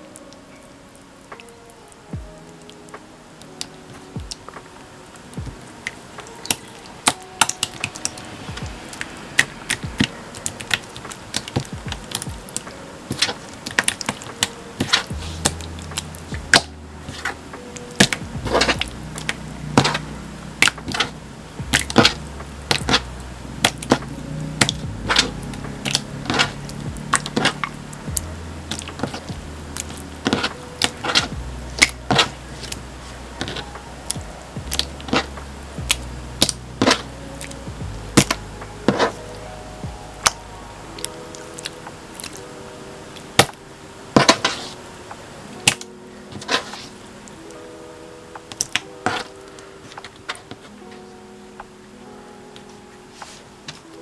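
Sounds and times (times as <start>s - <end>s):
quiet background music: 0.0s - 54.0s
slime squelching: 3.6s - 42.4s.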